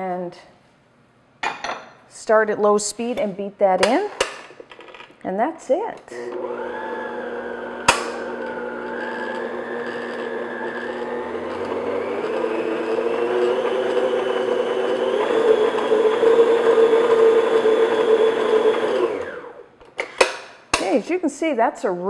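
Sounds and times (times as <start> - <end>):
stand mixer motor whir: 6.2 - 19.6.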